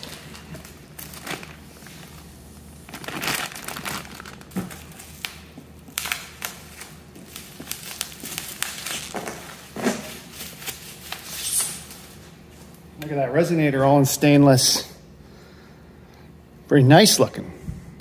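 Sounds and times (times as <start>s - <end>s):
bubble wrap crinkling: 0.0s - 12.2s.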